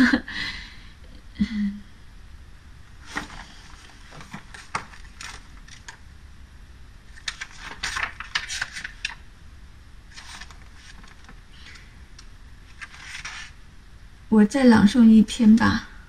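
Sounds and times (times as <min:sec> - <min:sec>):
faint low hum: 0:00.0 - 0:16.0
book pages rustling: 0:03.0 - 0:06.0, 0:07.1 - 0:09.2, 0:10.1 - 0:13.6.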